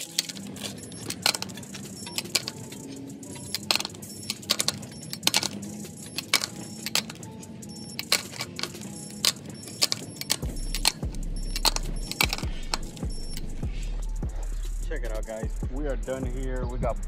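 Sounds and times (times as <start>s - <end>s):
metal tools clinking and rattling: 0.0s - 13.6s.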